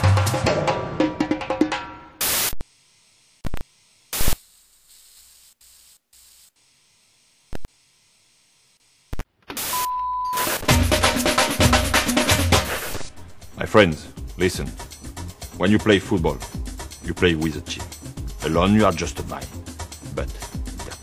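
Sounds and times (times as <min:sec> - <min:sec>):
tv static hiss: 0:02.2 - 0:10.8.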